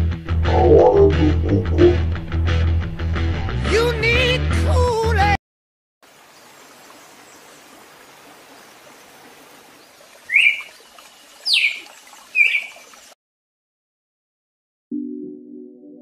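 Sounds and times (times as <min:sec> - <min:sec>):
bird calling: 0:00.5 - 0:02.0, 0:09.2 - 0:12.9.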